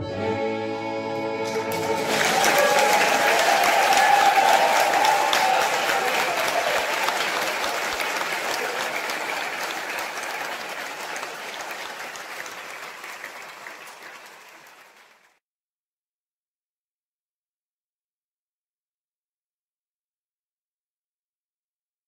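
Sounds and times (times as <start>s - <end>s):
audience applauding: 1.4s - 15.4s.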